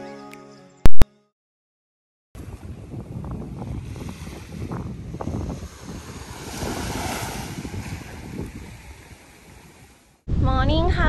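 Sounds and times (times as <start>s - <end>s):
wind buffeting microphone: 2.4s - 11.0s
small waves washing onto sand: 3.6s - 10.2s.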